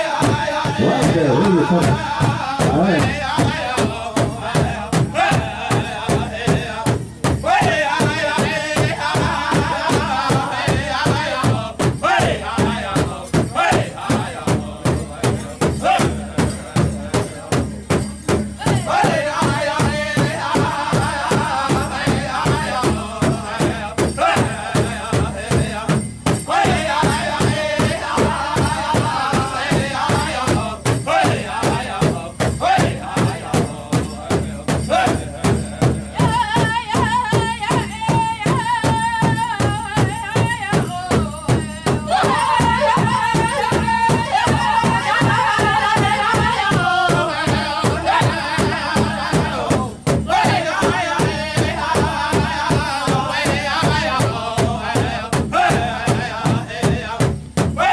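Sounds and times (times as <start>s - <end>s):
group of singers chanting: 0.0s - 6.9s, 26.5s - 34.0s, 42.1s - 57.2s
large drum steady beat: 0.0s - 57.9s.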